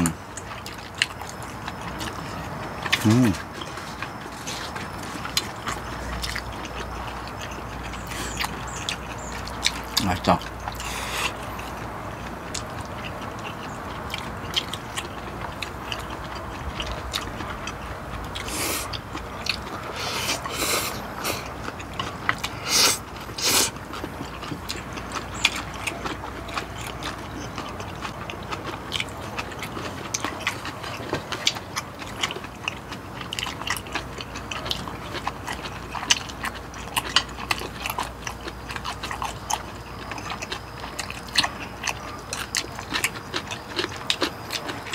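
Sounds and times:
slurping: 0:00.0 - 0:11.8, 0:12.5 - 0:32.7
chewing and mouth smacks: 0:00.0 - 0:44.9.

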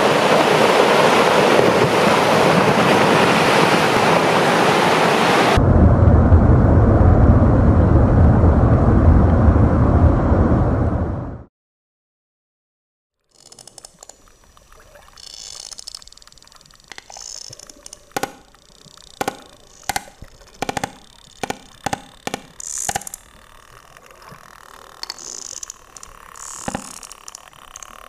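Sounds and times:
whale clicks underwater: 0:13.4 - 0:28.0
high buzzing bursts: 0:15.2 - 0:28.0.

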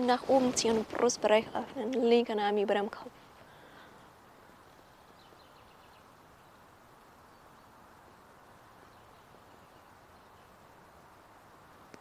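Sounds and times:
faint outdoor background hiss: 0:00.0 - 0:12.0.

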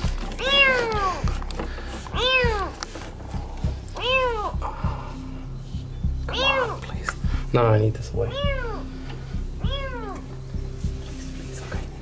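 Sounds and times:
kitten meowing: 0:02.2 - 0:02.7, 0:04.0 - 0:04.6, 0:06.3 - 0:06.8, 0:08.3 - 0:08.8, 0:09.6 - 0:10.3.

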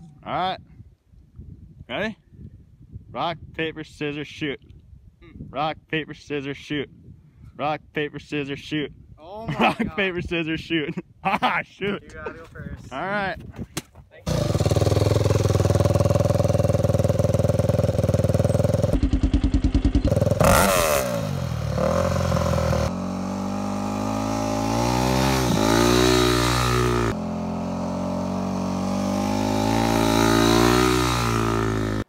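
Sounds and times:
dirt bike engine revving: 0:14.3 - 0:32.0.

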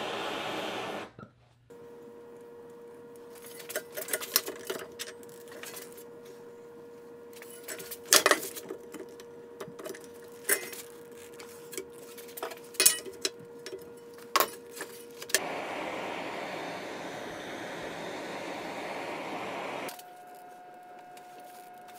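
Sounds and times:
gas torch hissing: 0:00.0 - 0:01.2, 0:15.4 - 0:19.9.

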